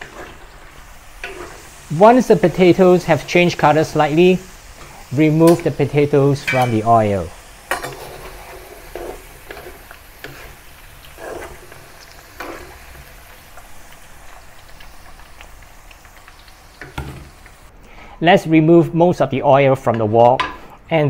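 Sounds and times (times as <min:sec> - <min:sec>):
potatoes sizzling in hot oil: 0:00.0 - 0:17.7
utensils knocking and scraping wok: 0:01.2 - 0:01.7, 0:06.4 - 0:11.8, 0:19.9 - 0:20.7.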